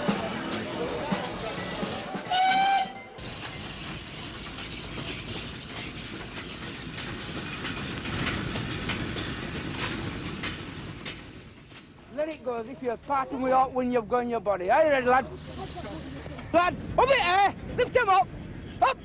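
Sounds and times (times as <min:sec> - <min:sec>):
train wheels rumbling on rails: 0:00.0 - 0:18.8
wagons clanking and rattling: 0:00.1 - 0:13.4.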